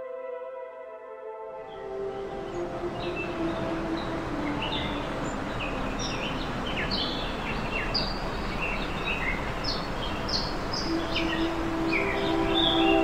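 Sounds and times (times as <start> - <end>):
small birds chirping: 1.7 - 13.0
waterfall rushing: 1.7 - 13.0.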